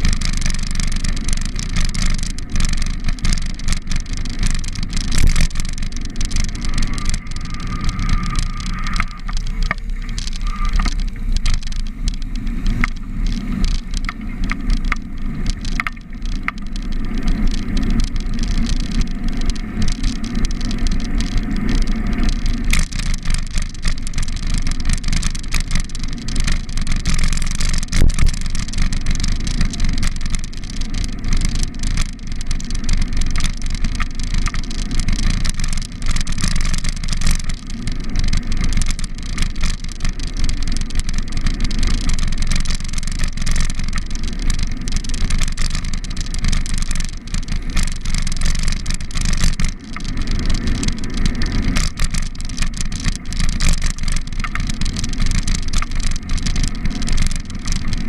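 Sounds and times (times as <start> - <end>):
car traffic: 0.0 - 33.3
wind and riding rumble: 0.0 - 58.0.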